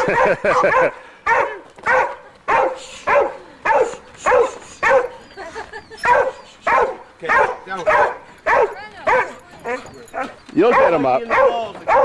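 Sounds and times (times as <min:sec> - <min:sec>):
dog barking: 0:00.0 - 0:05.1, 0:06.0 - 0:12.0.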